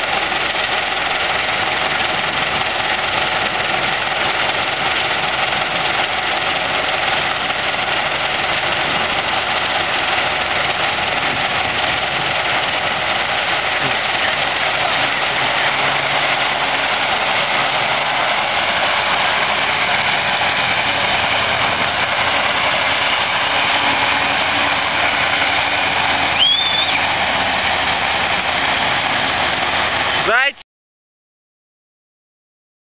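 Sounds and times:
diesel engine under load: 0:00.0 - 0:30.6
high squeal: 0:26.3 - 0:27.2.

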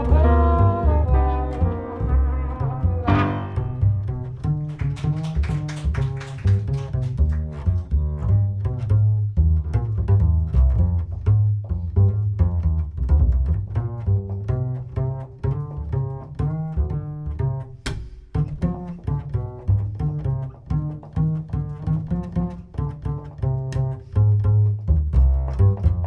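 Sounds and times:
piano chords: 0:00.0 - 0:04.4
plucked double bass: 0:00.0 - 0:26.0.

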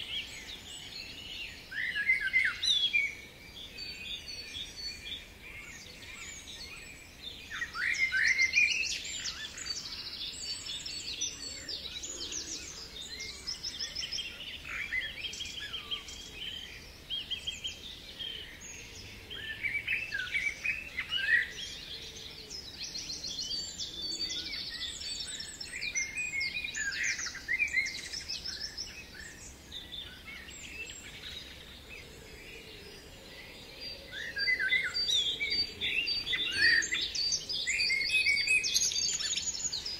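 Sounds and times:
songbirds singing: 0:00.0 - 0:39.9.

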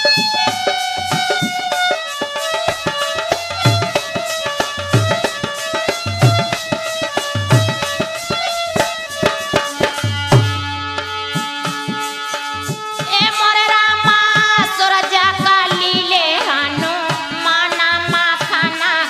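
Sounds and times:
held instrumental chords: 0:00.0 - 0:13.0
hand drum beat: 0:00.0 - 0:19.0
woman singing: 0:13.0 - 0:19.0.

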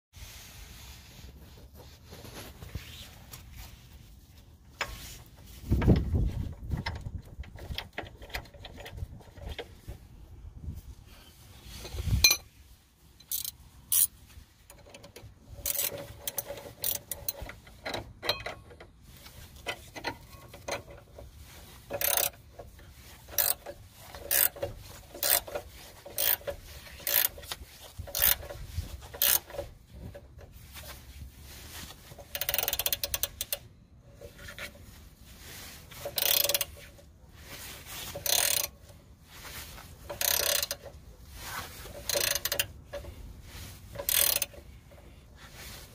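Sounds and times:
ratcheting spanner clicking: 0:05.8 - 0:09.8, 0:13.2 - 0:14.1, 0:14.7 - 0:30.2, 0:32.2 - 0:33.6, 0:35.9 - 0:37.0, 0:38.1 - 0:38.7, 0:40.0 - 0:41.0, 0:41.9 - 0:43.1, 0:43.9 - 0:45.0.

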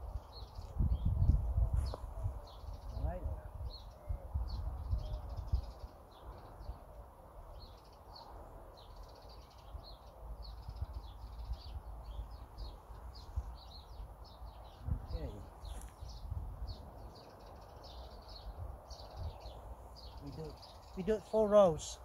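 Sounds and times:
small birds chirping: 0:00.0 - 0:22.0.

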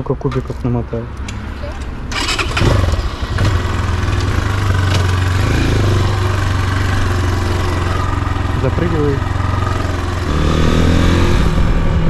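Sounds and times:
motorcycle engine idling: 0:03.7 - 0:10.4.

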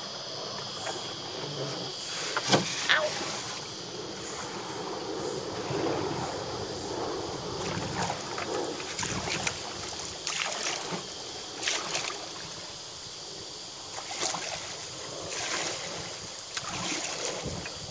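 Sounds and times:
paddle splashing in water: 0:07.6 - 0:12.7, 0:13.9 - 0:17.9.

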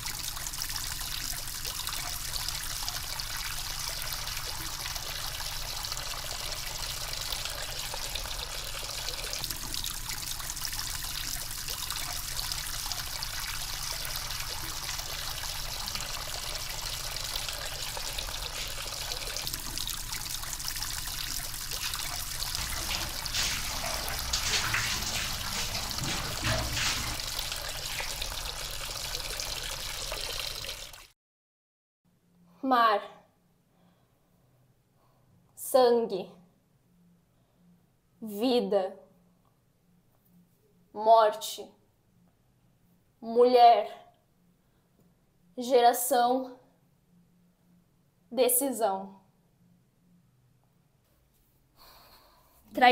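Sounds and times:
water running and splashing: 0:00.0 - 0:31.1.

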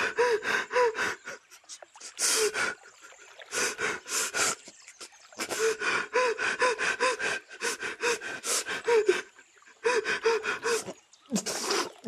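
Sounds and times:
person breathing heavily in gasps: 0:00.0 - 0:02.9, 0:05.4 - 0:12.0.

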